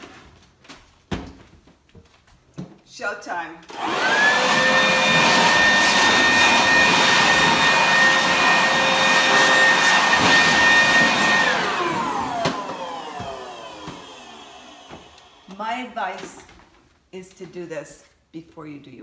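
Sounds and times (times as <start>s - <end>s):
electric leaf blower whining: 3.7s - 15.6s.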